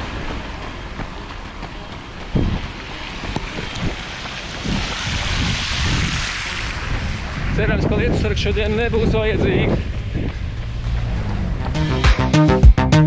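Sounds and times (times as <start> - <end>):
soft footsteps: 0.0 - 7.1, 8.5 - 11.6
fountain water splashing: 0.0 - 9.2
wind buffeting microphone: 0.0 - 11.9.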